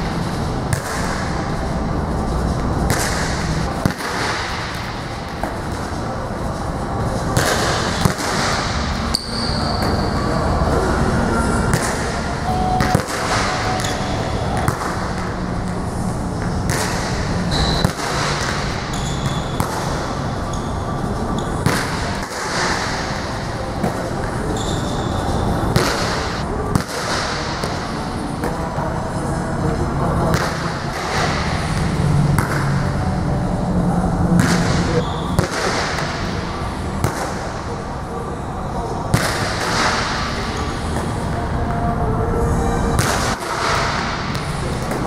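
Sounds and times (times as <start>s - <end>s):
steady background noise: 0.0s - 45.0s
volleyballs smacking on gym floor: 12.8s - 15.8s, 16.4s - 20.0s.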